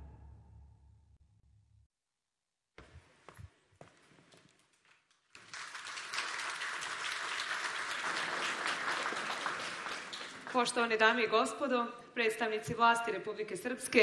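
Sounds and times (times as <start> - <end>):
audience applauding: 4.8 - 10.8.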